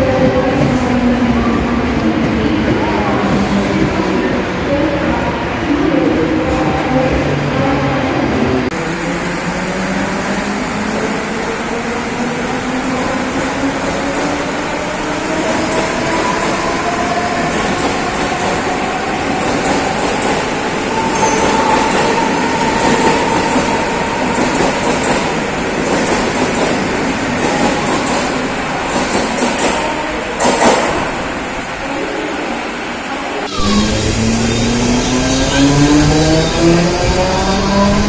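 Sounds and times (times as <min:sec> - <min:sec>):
train wheels on rails: 0:09.6 - 0:31.4
traction motors whining: 0:33.5 - 0:38.0.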